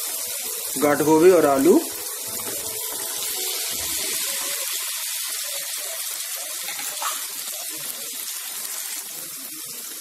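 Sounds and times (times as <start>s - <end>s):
masala sizzling in a pan: 0.0s - 10.0s.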